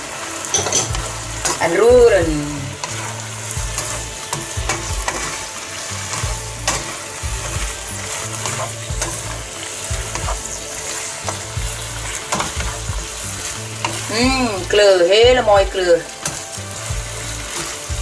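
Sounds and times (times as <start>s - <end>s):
food sizzling in a wok: 0.0s - 18.0s
spatula scraping a pan: 2.7s - 15.0s.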